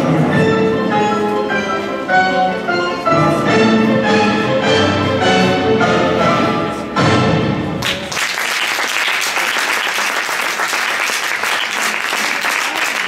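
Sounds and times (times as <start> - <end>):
orchestral music: 0.0 - 8.1
audience applauding: 7.8 - 13.0.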